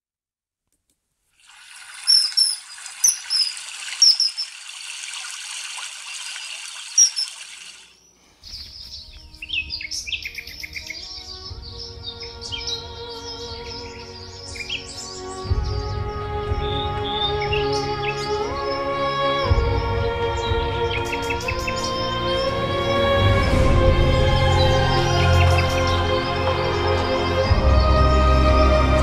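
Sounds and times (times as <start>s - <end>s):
birds chirping: 1.7s - 23.0s
loud sharp bird calls: 1.9s - 4.8s, 6.1s - 18.8s
background music: 8.7s - 29.0s.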